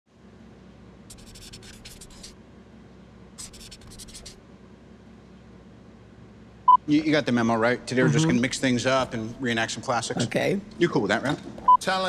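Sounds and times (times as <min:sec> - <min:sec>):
faint low hum: 0:00.1 - 0:12.0
pen scratching on paper: 0:01.1 - 0:02.4, 0:03.4 - 0:04.4.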